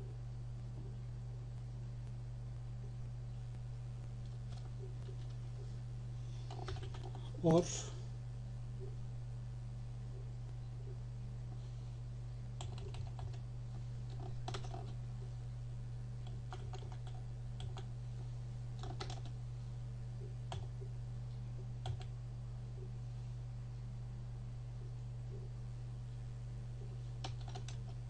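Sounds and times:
steady low hum: 0.0s - 28.0s
computer keyboard keystrokes: 6.5s - 7.2s, 12.6s - 13.4s, 14.1s - 15.0s, 16.2s - 17.9s, 18.8s - 19.3s, 21.8s - 22.1s, 27.2s - 28.0s.

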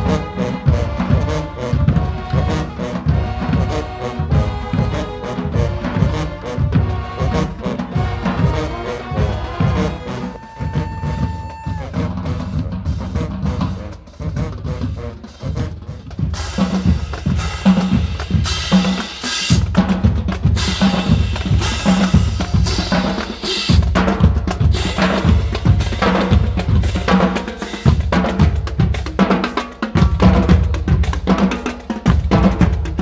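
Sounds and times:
held brass note: 0.0s - 18.6s
snare and bass drums beating: 0.0s - 33.0s.

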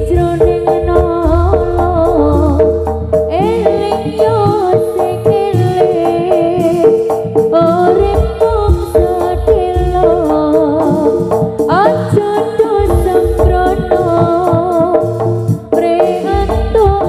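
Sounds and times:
deep drum beats: 0.0s - 6.7s
gamelan ensemble music: 0.7s - 4.1s
quick rising sweep: 1.2s - 3.3s.

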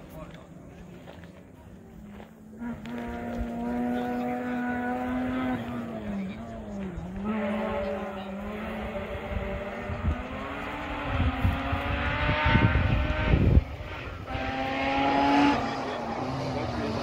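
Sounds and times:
rally car engine at high revs: 2.5s - 17.0s.

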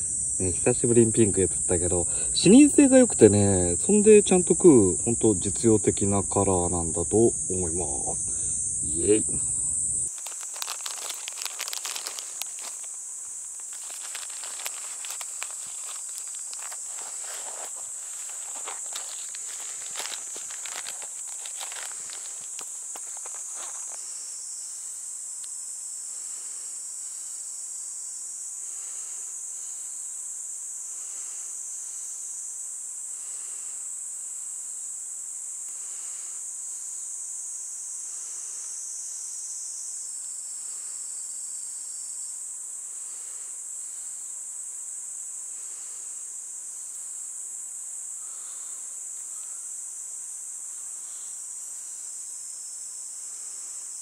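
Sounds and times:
insects chirring: 0.0s - 54.0s
lower insect call: 0.0s - 54.0s.

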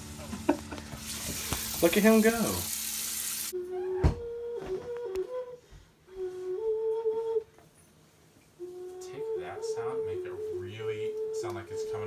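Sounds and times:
tap running: 0.4s - 3.1s
flute-like wind instrument tune: 3.5s - 7.6s, 8.6s - 12.0s.

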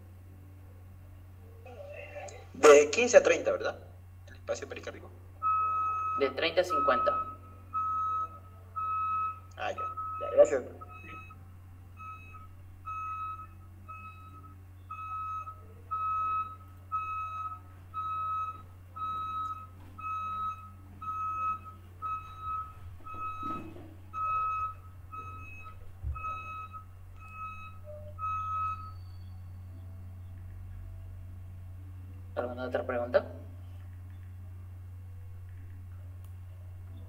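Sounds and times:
constant low hum: 0.0s - 37.0s
high-pitched electronic beeps: 5.4s - 11.4s, 12.0s - 30.3s.

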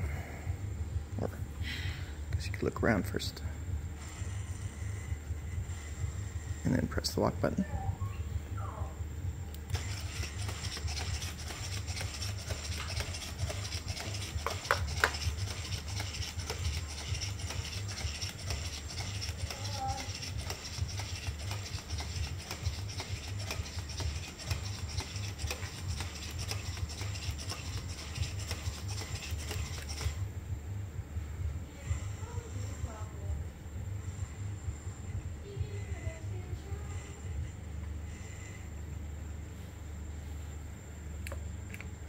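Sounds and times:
servo motors whirring: 9.6s - 30.3s
robot feet tapping: 9.7s - 30.2s.

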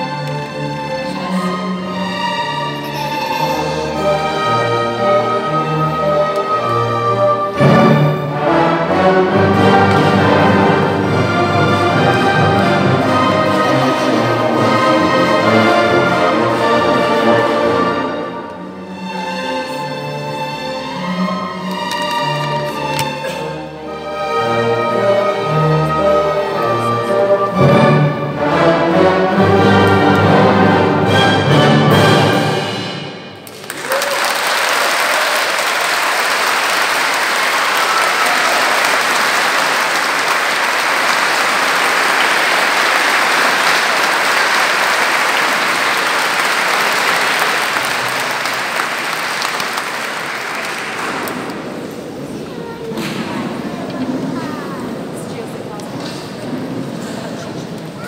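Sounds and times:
orchestra playing classical piece: 0.0s - 58.0s
audience applauding: 33.4s - 52.2s.

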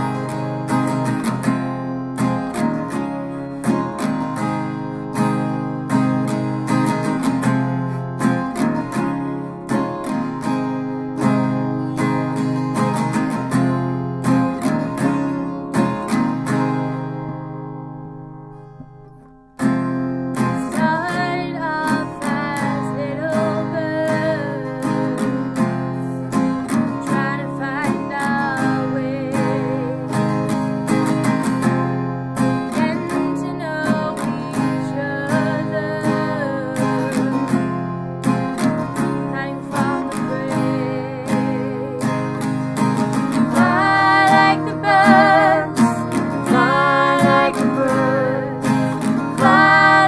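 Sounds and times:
strummed acoustic guitar: 0.0s - 50.0s
woman singing with vibrato: 20.6s - 25.5s, 27.0s - 30.2s, 32.8s - 37.5s, 39.2s - 42.5s, 43.3s - 50.0s.

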